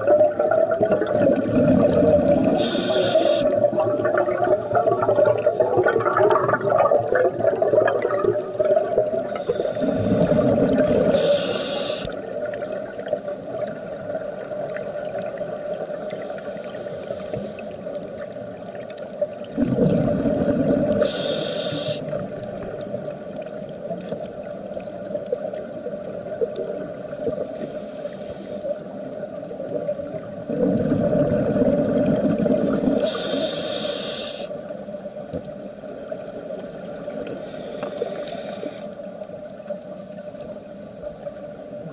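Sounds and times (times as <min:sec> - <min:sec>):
diver breathing through regulator: 0:02.6 - 0:03.6, 0:09.3 - 0:12.2, 0:16.0 - 0:17.8, 0:21.0 - 0:22.2, 0:27.5 - 0:28.7, 0:32.6 - 0:34.6, 0:37.3 - 0:39.0.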